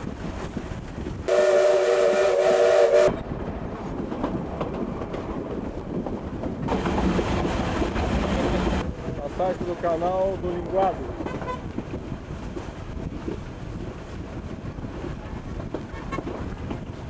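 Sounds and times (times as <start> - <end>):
train running on rails: 0.0 - 17.0
steam locomotive whistle: 1.3 - 3.2.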